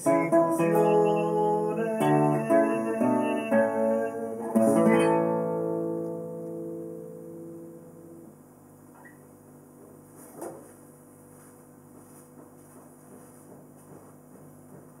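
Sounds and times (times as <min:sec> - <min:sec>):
classical guitar chord: 0:00.0 - 0:08.5
shuffling and handling noises: 0:09.8 - 0:15.0.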